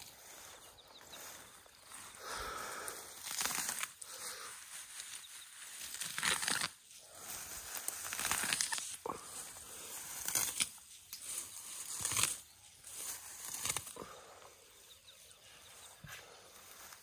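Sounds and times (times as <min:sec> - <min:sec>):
elephant tearing and munching grass: 0:03.2 - 0:03.9, 0:05.8 - 0:06.8, 0:07.8 - 0:10.8, 0:11.4 - 0:12.4, 0:13.0 - 0:14.0.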